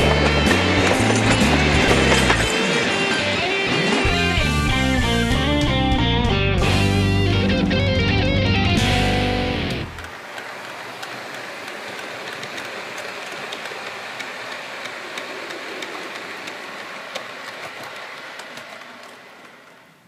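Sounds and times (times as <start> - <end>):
clicks over rail joints: 0.0 - 4.2, 9.9 - 20.0
model train wheels rattling: 0.0 - 4.5, 10.0 - 20.0.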